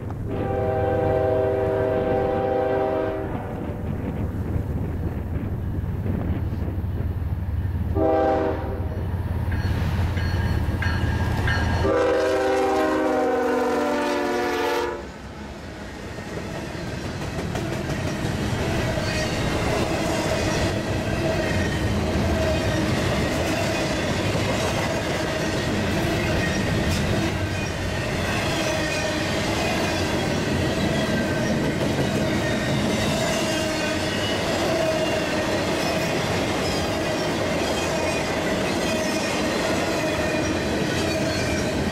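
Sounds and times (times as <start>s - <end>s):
diesel locomotive engines: 0.0s - 41.9s
train air horn blast: 0.3s - 3.8s, 7.9s - 9.0s, 11.8s - 15.2s.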